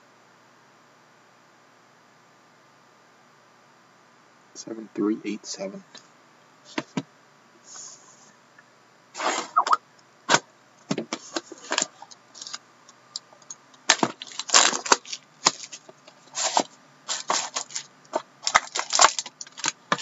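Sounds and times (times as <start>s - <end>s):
cardboard and plastic wrap crackling: 13.8s - 20.0s.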